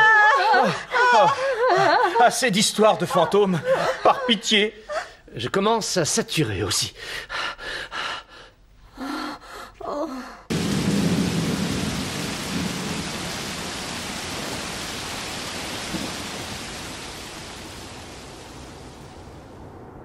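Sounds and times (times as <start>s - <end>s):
steady rain: 10.5s - 20.0s
thunder rolling: 10.5s - 20.0s.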